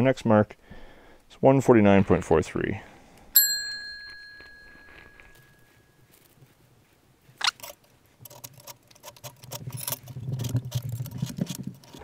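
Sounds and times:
caliper jaw scraping metal: 0:07.4 - 0:12.0.

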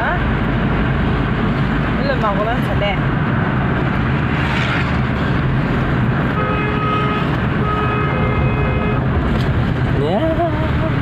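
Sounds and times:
vehicle engine and road noise: 0:00.0 - 0:11.0
vehicle horn: 0:06.3 - 0:09.1.

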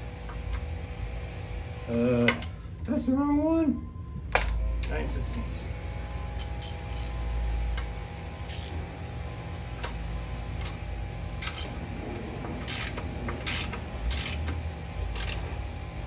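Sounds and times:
background hum: 0:00.0 - 0:16.0
socket ratchet rasping: 0:06.4 - 0:07.2, 0:08.5 - 0:08.8, 0:11.4 - 0:11.8, 0:12.6 - 0:15.5.

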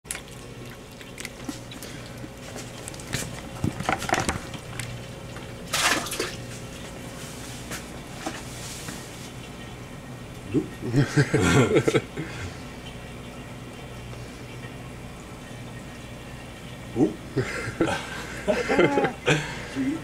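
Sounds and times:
water sloshing in bucket: 0:00.1 - 0:09.4
steady low hum: 0:00.1 - 0:20.0.

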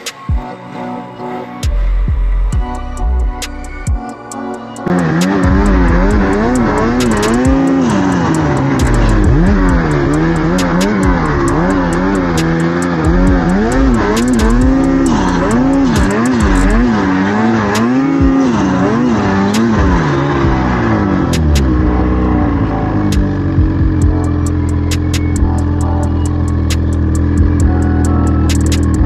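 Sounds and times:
snowmobile engine revving: 0:04.8 - 0:29.0
sharp clicks: 0:13.6 - 0:14.6, 0:24.9 - 0:25.4, 0:28.5 - 0:29.0.

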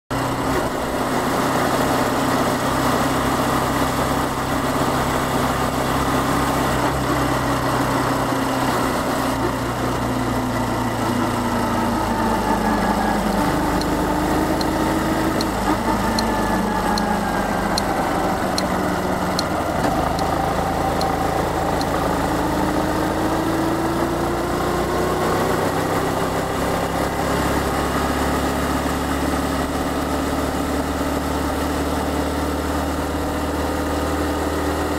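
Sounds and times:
motorcycle engine running: 0:00.1 - 0:34.9
light regular ticking: 0:13.3 - 0:22.0.

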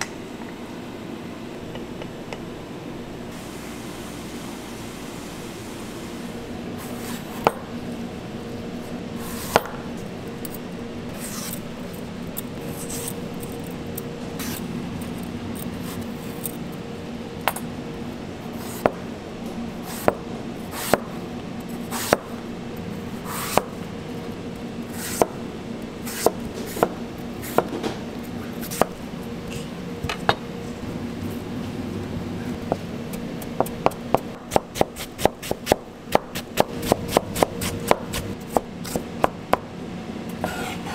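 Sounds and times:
steady low hum: 0:00.0 - 0:40.9
knife chopping on cutting board: 0:21.9 - 0:22.3, 0:26.1 - 0:27.9.

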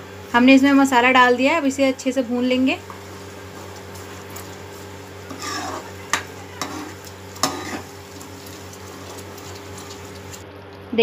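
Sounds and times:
low sizzle of frying: 0:00.0 - 0:11.0
spatula scraping paste in pan: 0:05.2 - 0:10.4.

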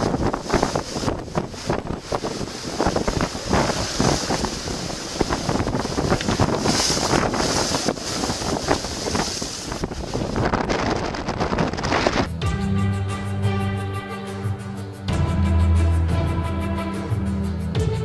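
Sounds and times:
rough sea waves breaking: 0:00.0 - 0:12.3
wind buffeting microphone: 0:00.0 - 0:12.3.

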